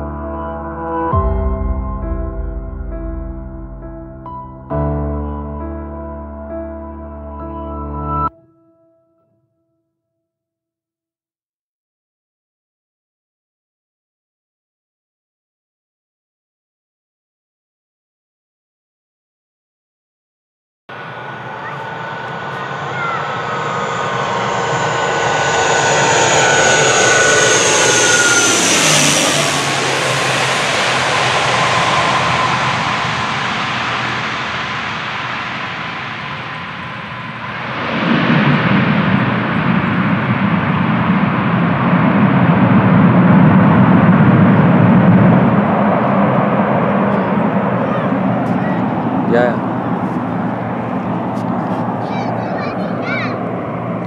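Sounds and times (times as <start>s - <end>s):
turboprop airliner landing: 0.0s - 6.8s, 20.9s - 54.0s
deep rumble: 0.0s - 7.5s, 21.0s - 52.0s.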